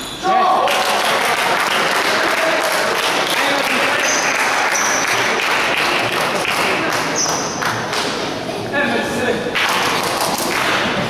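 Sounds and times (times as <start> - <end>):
crowd applauding: 0.5 - 8.0.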